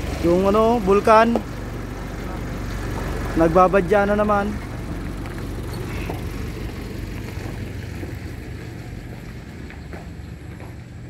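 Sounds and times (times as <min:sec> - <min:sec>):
low motor hum: 0:00.0 - 0:11.0.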